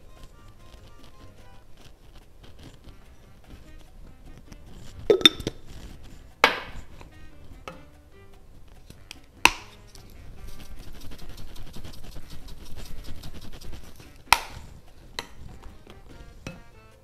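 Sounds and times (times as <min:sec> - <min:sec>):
knife chopping on cutting board: 0:06.4 - 0:06.8.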